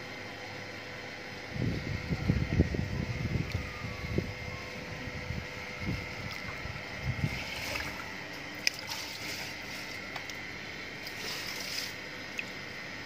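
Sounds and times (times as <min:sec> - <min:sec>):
water sloshing and trickling: 0:05.7 - 0:12.7.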